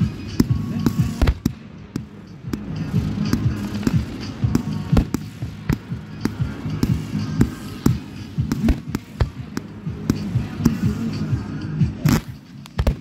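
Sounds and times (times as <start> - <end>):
fireworks bangs and pops: 0.0 - 13.0
music playing: 0.0 - 13.0.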